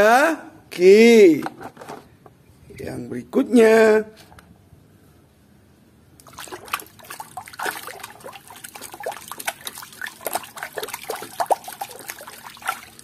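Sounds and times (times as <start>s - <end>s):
water sloshing and splashing: 6.2s - 13.0s.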